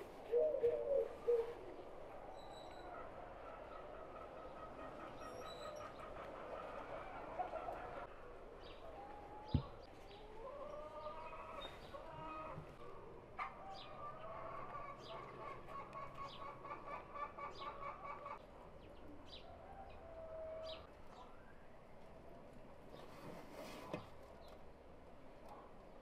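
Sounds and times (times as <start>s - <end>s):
chickens clucking: 2.6s - 8.2s, 8.9s - 19.4s.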